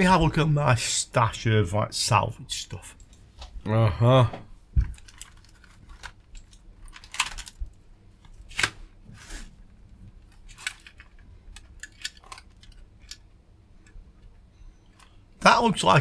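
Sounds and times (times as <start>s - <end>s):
hands rummaging through wires: 4.8s - 8.7s, 9.6s - 13.3s.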